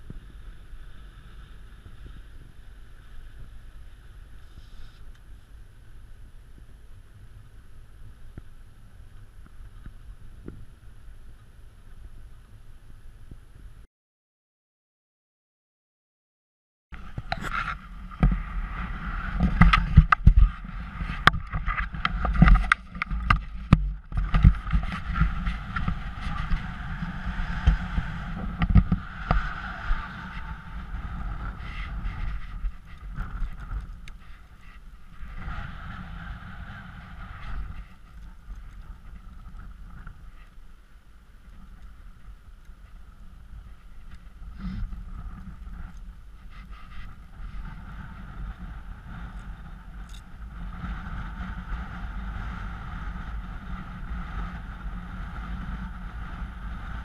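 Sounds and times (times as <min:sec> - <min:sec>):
wind buffeting microphone: 0:17.0 - 0:57.0.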